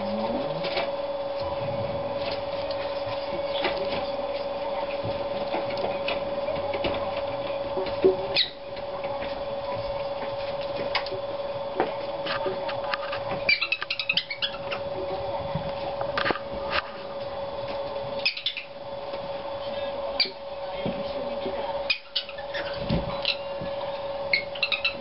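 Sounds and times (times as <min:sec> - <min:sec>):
animals scratching on carpet: 0:00.0 - 0:18.6.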